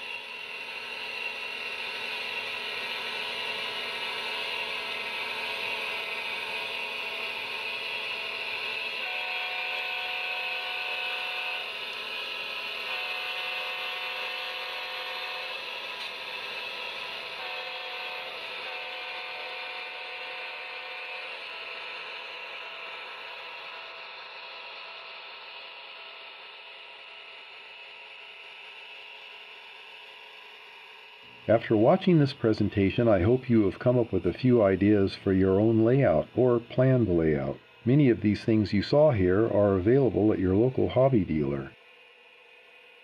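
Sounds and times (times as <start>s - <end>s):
model train whirring on track: 0.0s - 43.0s.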